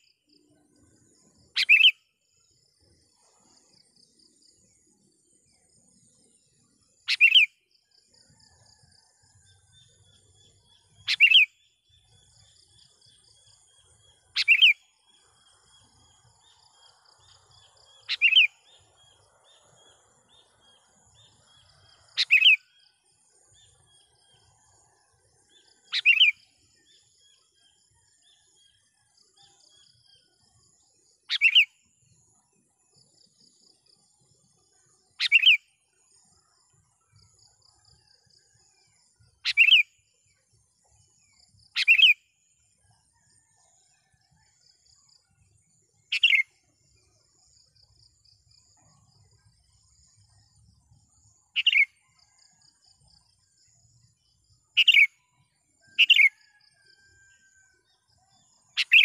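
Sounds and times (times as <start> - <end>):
bulbul calls: 1.6 - 2.0, 7.1 - 7.5, 10.9 - 11.6, 14.3 - 14.9, 17.3 - 18.6, 22.1 - 22.6, 25.9 - 26.4, 31.3 - 31.7, 35.2 - 35.6, 39.4 - 39.9, 41.7 - 42.2, 46.1 - 46.5, 51.6 - 51.9, 54.8 - 55.2, 55.9 - 56.6, 58.8 - 59.0.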